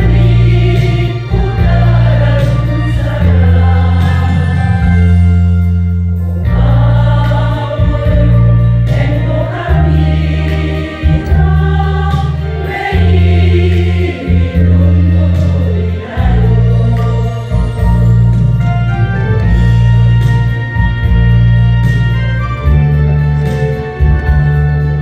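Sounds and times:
women's choir singing: 0.0s - 5.1s, 6.4s - 18.1s
accompaniment track with bass: 0.0s - 25.0s.

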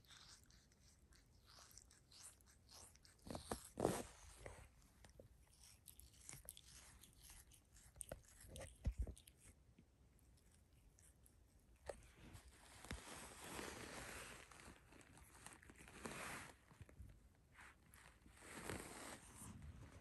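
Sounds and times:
cat chewing: 0.0s - 12.6s
cat licking and nibbling: 0.0s - 17.1s.

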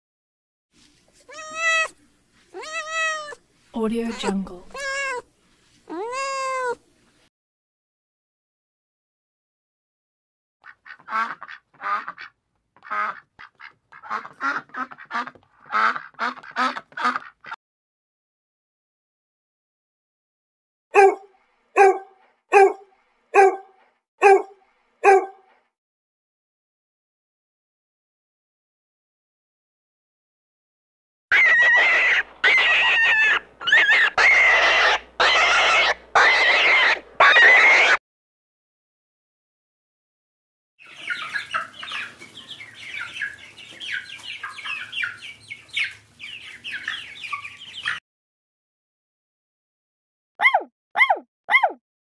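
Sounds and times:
animal high-pitched calls: 1.3s - 3.4s, 4.0s - 5.2s, 5.9s - 6.8s, 21.0s - 21.2s, 21.8s - 22.8s, 23.4s - 25.4s, 31.3s - 38.0s, 50.4s - 51.8s
duck quacking: 10.6s - 17.6s.

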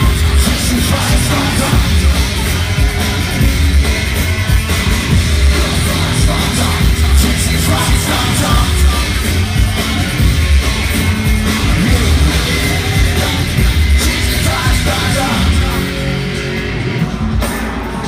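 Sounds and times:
live electronic rock music: 0.0s - 18.0s.

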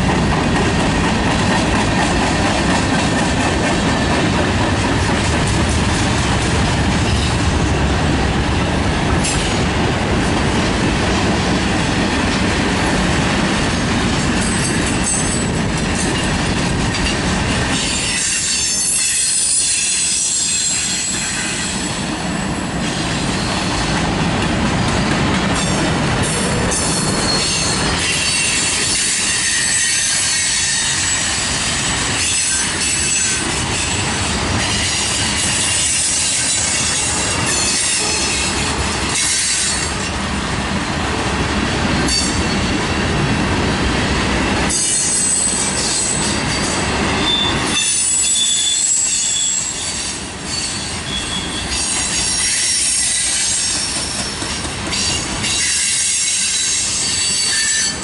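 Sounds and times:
steel train wheels rumbling on rail: 0.0s - 58.0s
high-pitched wheel squeal: 47.2s - 54.2s.

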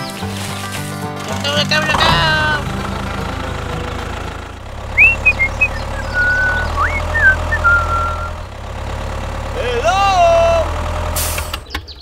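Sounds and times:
tractor engine idling: 0.0s - 12.0s
high whistled chirps: 5.0s - 8.4s.

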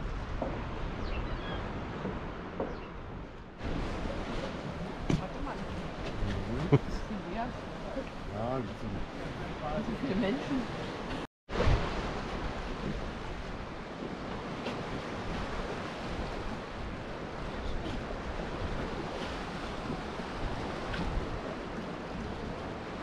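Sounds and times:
waves washing: 0.0s - 23.0s
wind on microphone: 0.0s - 23.0s.

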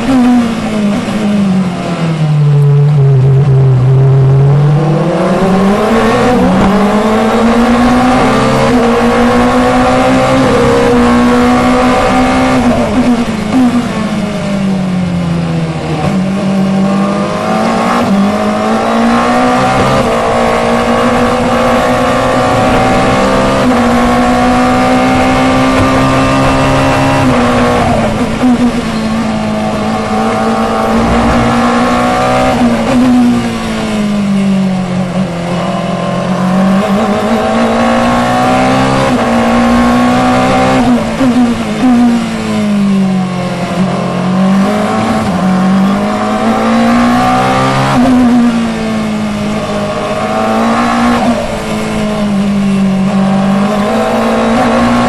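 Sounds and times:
race car engine shifting gears: 15.8s - 42.9s.

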